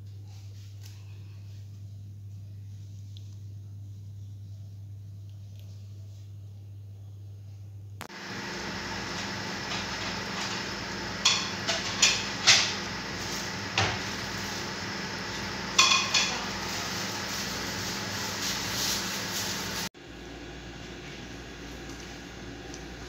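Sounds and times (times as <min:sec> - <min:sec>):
metal utensil clinking on pot: 0:15.8 - 0:16.4.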